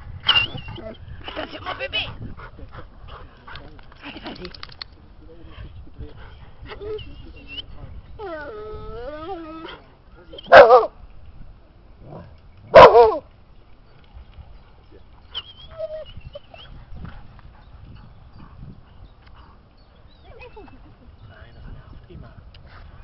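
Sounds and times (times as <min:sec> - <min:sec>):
dog whining: 0:08.2 - 0:09.8, 0:15.4 - 0:16.6
dog barking: 0:10.5 - 0:10.9, 0:12.7 - 0:13.2.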